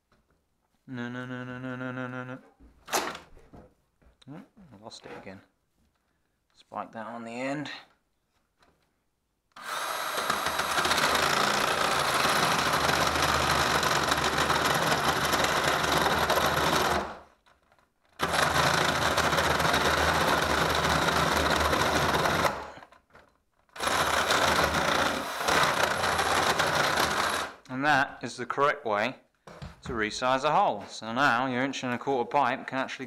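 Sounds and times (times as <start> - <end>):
drill boring through timber: 9.6 - 17.2, 18.2 - 23.0, 23.8 - 27.6.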